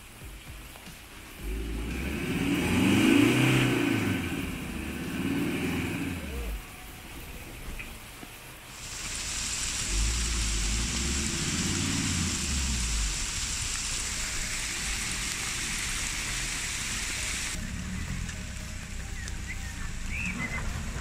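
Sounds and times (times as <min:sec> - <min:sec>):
heavy rain and hail: 0:00.0 - 0:21.0
deep low rumble: 0:01.4 - 0:07.0, 0:09.7 - 0:16.6.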